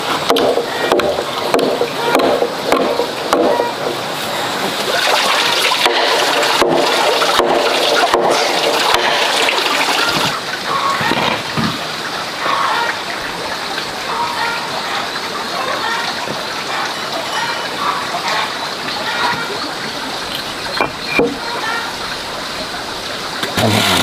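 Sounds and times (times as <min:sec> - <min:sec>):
wooden beams knocking and sliding: 0:00.0 - 0:04.0, 0:10.1 - 0:11.9, 0:20.3 - 0:21.5
stream water running: 0:00.0 - 0:24.0.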